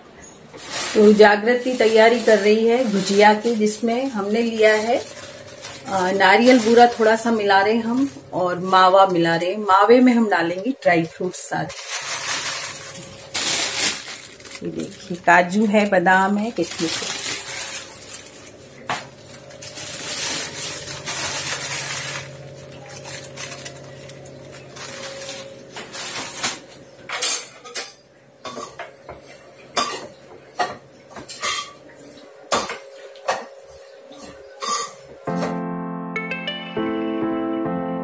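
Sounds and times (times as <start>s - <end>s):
kitchen utensils clinking: 0.5s - 35.5s
music: 35.2s - 38.0s.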